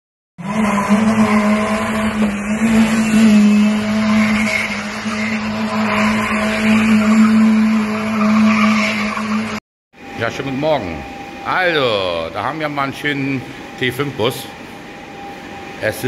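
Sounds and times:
car engine at high revs: 0.4s - 9.6s.

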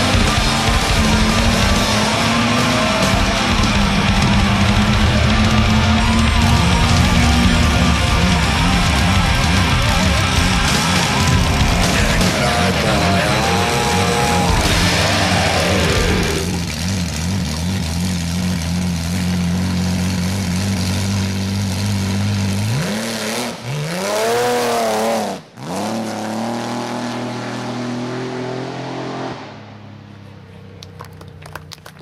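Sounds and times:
car engine revving: 0.0s - 30.1s.

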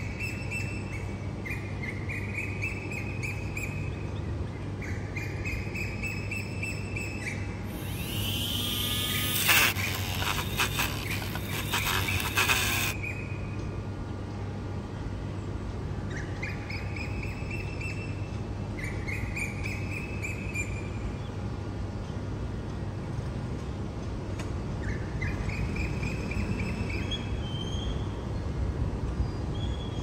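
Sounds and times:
steady low hum: 7.4s - 13.0s
small birds chirping: 7.7s - 13.0s.

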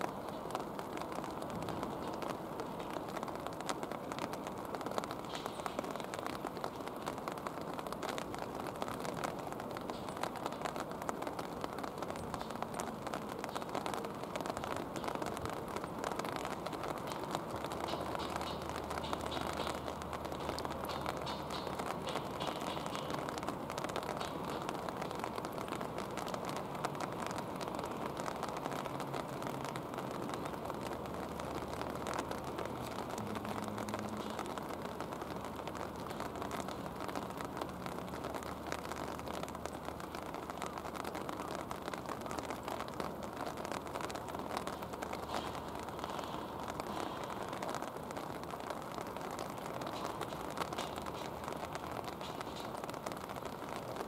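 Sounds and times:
steady rain falling: 0.0s - 54.0s.

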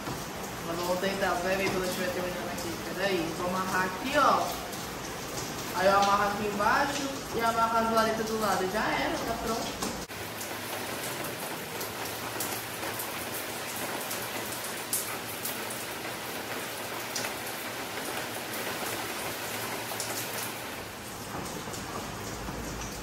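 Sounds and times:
sharp rain ticks: 0.0s - 23.0s
steady rain falling: 0.0s - 23.0s.

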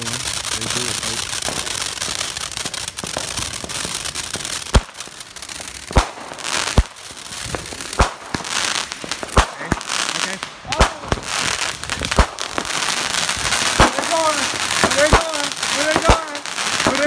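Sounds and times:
fireworks crackling: 0.0s - 17.0s
spark fountain hissing crackle: 0.0s - 17.0s
aerial shells bursting bangs: 5.8s - 9.8s, 10.5s - 16.3s.

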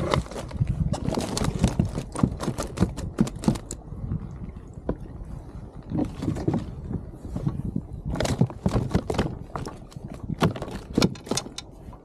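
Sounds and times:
fish slapping in a net: 0.0s - 3.7s
low wind rumble: 0.0s - 12.0s.

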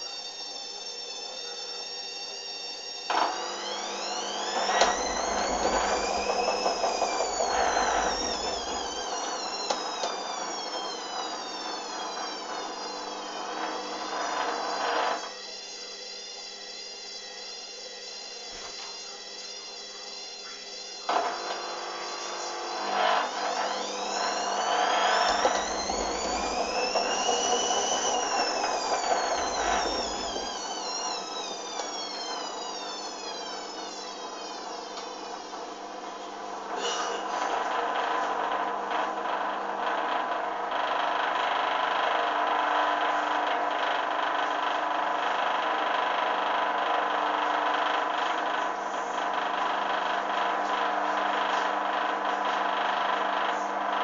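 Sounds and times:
steady low hum: 0.0s - 41.3s
washing machine drum motor whining: 0.0s - 54.0s.

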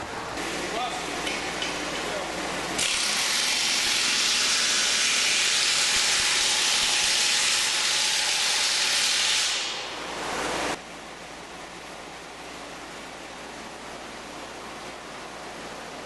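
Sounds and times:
pneumatic impact wrench: 2.8s - 9.9s.

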